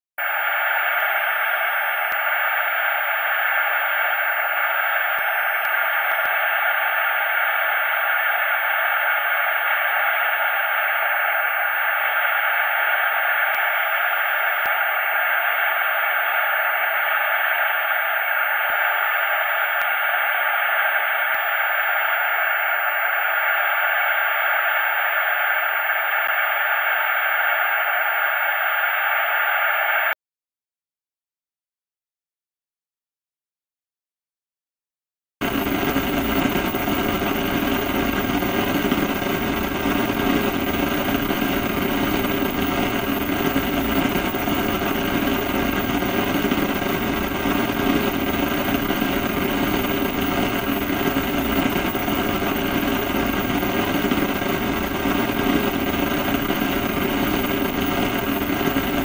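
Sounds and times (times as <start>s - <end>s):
faint high-pitched whine: 0.2s - 30.1s
television static hiss: 5.2s - 30.1s.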